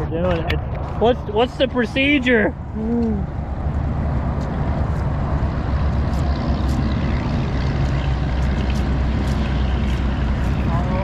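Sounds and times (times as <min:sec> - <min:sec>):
boat motor humming: 0:02.6 - 0:11.0.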